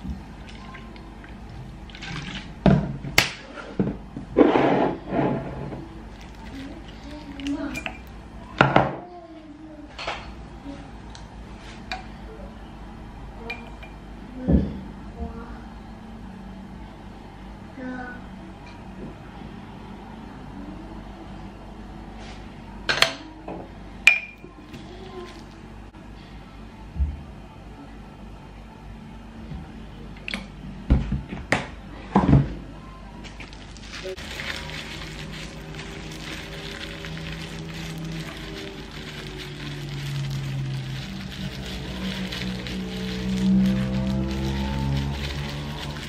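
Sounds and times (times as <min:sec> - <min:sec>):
soft background music: 0:05.4 - 0:46.0
gloved hands mixing raw meat: 0:06.0 - 0:08.2, 0:24.6 - 0:25.7, 0:33.3 - 0:46.0.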